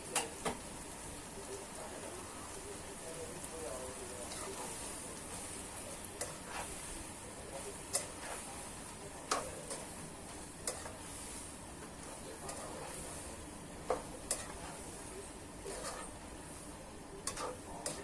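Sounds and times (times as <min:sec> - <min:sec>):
food sizzling in a wok: 0:00.0 - 0:18.0
spatula scraping: 0:04.2 - 0:16.2, 0:17.2 - 0:18.0.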